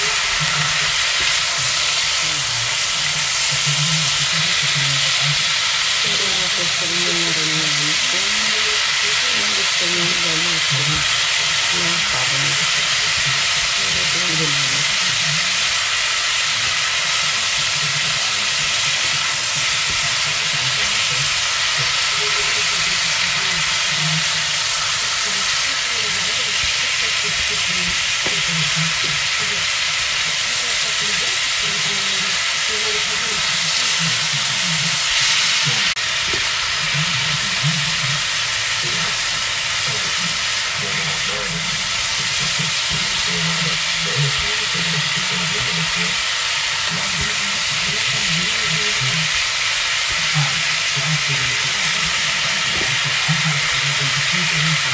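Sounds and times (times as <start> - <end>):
meat and onion sizzling in pan: 0.0 - 54.9
spatula stirring in pan: 0.0 - 54.9.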